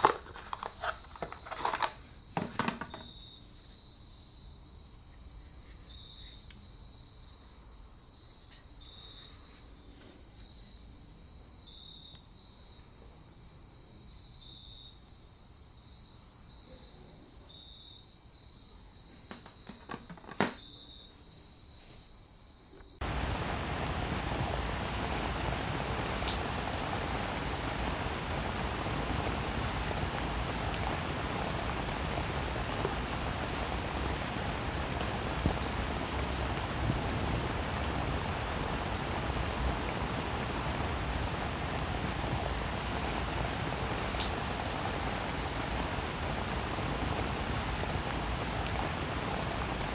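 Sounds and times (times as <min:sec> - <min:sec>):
steady rain: 0:00.0 - 0:03.7, 0:23.0 - 0:49.9
faint high chirping: 0:02.9 - 0:13.2, 0:14.0 - 0:15.1, 0:16.5 - 0:19.7, 0:20.5 - 0:23.0.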